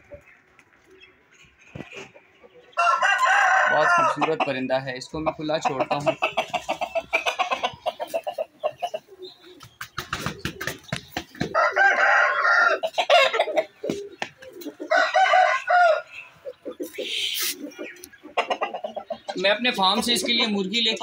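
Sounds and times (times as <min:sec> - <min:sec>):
rooster crowing: 0:02.8 - 0:04.2, 0:11.5 - 0:13.3, 0:14.9 - 0:16.1
rapid clucking: 0:04.0 - 0:11.8, 0:16.5 - 0:21.0.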